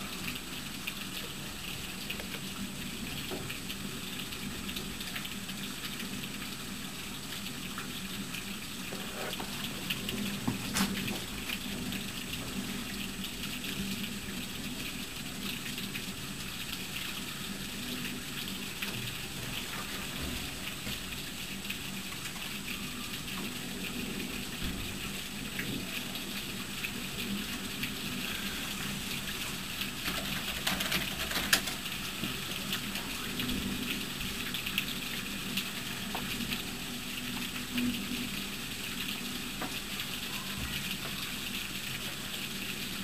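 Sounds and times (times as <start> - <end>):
rain hissing: 0.0 - 43.0
raindrop clicks: 0.2 - 6.6, 7.3 - 17.1, 26.8 - 38.1.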